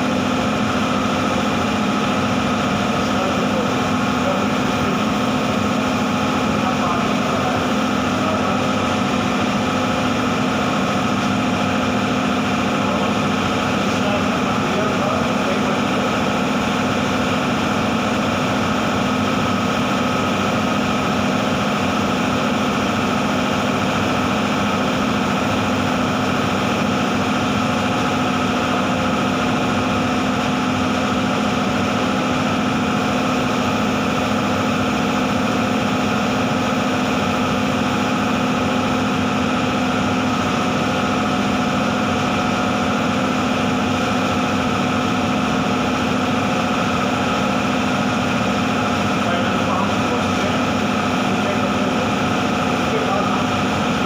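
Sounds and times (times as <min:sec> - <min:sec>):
extraction fan humming: 0:00.0 - 0:54.0.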